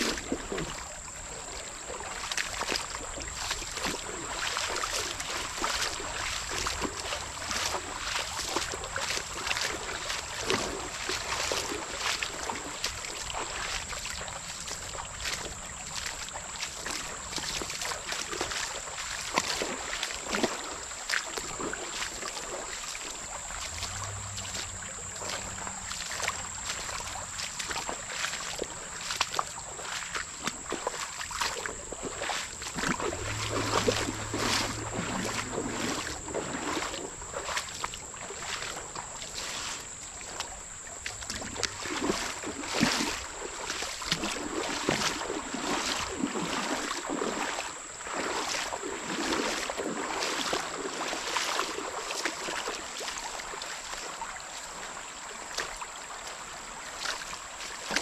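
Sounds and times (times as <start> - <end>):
footsteps splashing in water: 0.0 - 58.0
creek current rushing: 19.6 - 40.7.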